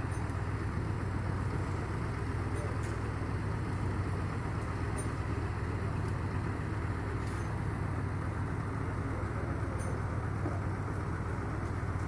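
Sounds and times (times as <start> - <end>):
heavy vehicle engine idling: 0.0 - 12.0.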